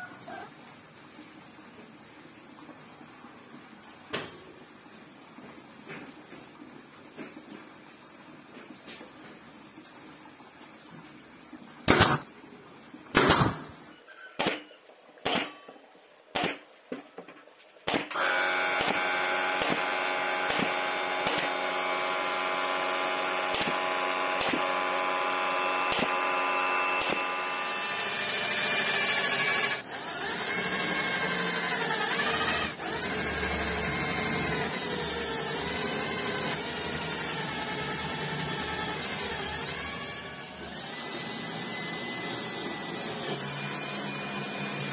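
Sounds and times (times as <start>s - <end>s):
nail gun shots: 11.9s - 12.3s, 13.1s - 13.7s, 14.4s - 15.6s, 16.3s - 16.6s, 17.8s - 21.6s, 23.5s - 23.8s, 24.4s - 24.8s, 25.9s - 26.3s
steady motor hum: 18.2s - 44.9s.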